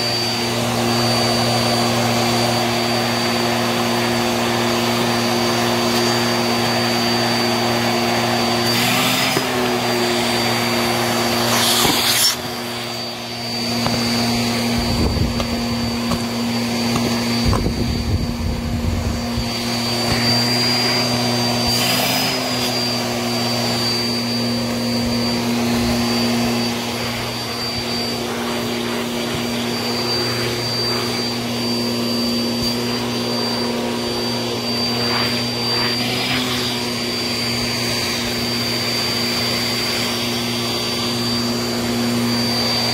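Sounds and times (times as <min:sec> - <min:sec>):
vacuum cleaner running: 0:00.0 - 0:42.9
vacuum sucking up debris: 0:19.0 - 0:39.4.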